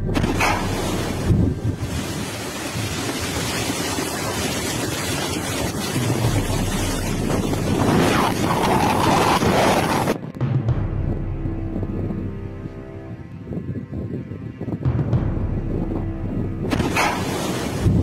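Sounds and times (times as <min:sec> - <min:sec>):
river water roaring: 0:00.0 - 0:10.2, 0:16.7 - 0:18.0
wind buffeting microphone: 0:00.0 - 0:18.0.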